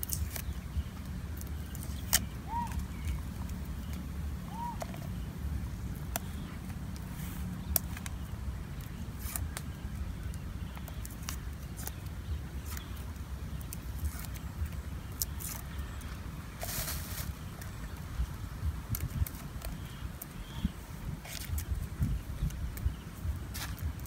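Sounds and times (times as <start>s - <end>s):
garlic clicks and crackles: 0.0s - 24.0s
steady low rumble: 0.0s - 24.0s
plastic bag rustling: 16.5s - 17.6s.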